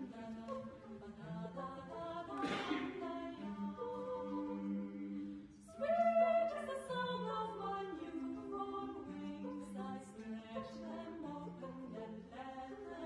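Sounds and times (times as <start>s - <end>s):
choir singing a cappella: 0.0s - 13.0s.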